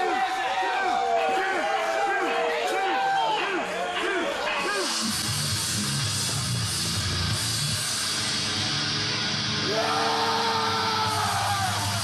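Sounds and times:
distorted guitar: 4.8s - 12.0s
heavy rock music: 4.9s - 12.0s.

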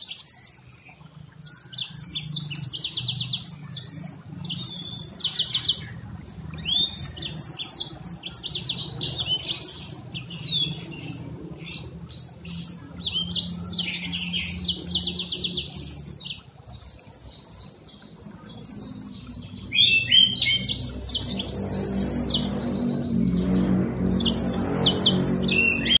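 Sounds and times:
canary singing trills: 0.0s - 26.0s
low hum: 17.4s - 26.0s.

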